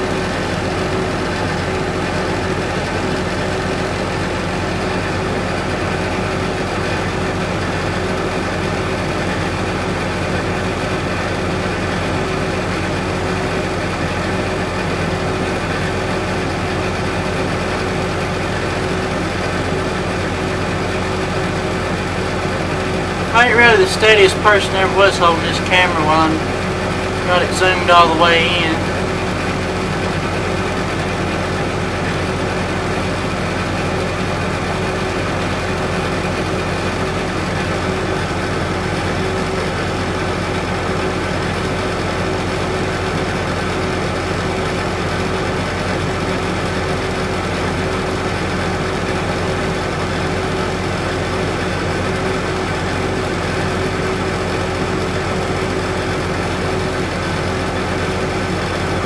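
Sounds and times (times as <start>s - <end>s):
tractor engine idling: 0.0s - 46.2s.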